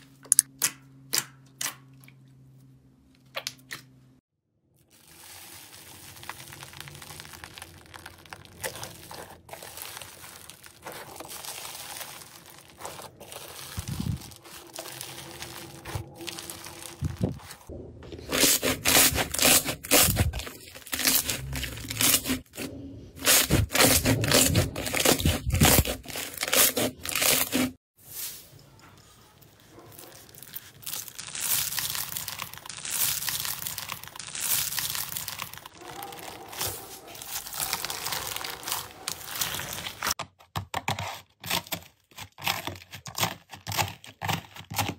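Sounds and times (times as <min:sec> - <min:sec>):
slime squishing: 0:04.8 - 0:27.8, 0:29.6 - 0:40.2
crunching foam beads in slime: 0:04.8 - 0:28.3, 0:29.6 - 0:40.2
hands rustling foam beads: 0:04.8 - 0:40.2.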